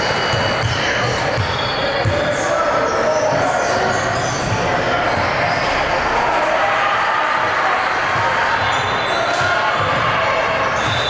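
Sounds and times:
basketball bouncing on court: 0.0 - 2.4, 8.0 - 11.0.

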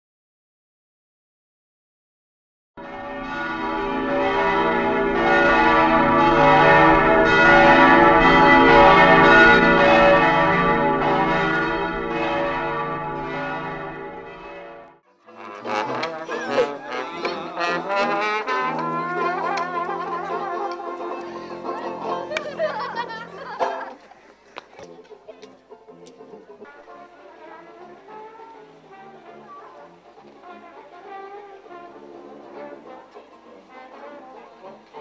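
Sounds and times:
bells ringing: 2.8 - 23.9
brass band playing lively tune: 15.3 - 24.0, 25.7 - 35.0.

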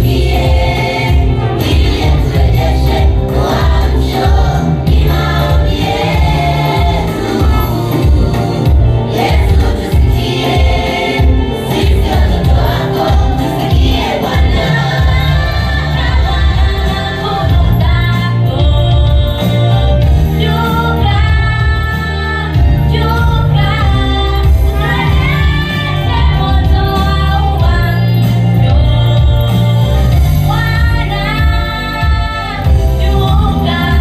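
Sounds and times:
children's choir singing: 0.0 - 17.8, 23.0 - 28.0
backing music with strong bass: 0.0 - 34.0.

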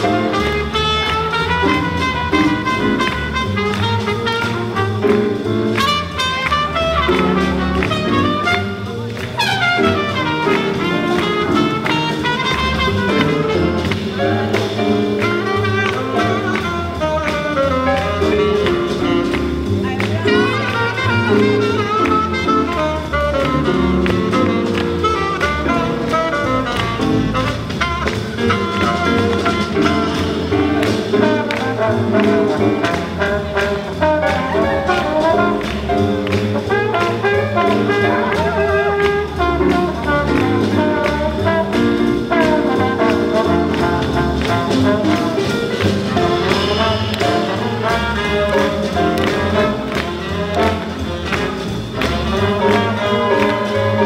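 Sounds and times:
swing jazz band playing: 0.0 - 54.0
horn pitch slide: 46.1 - 48.8.

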